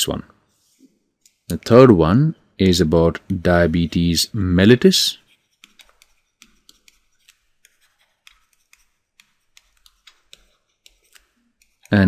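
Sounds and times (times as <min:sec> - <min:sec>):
stylus writing on tablet: 0:04.9 - 0:12.0.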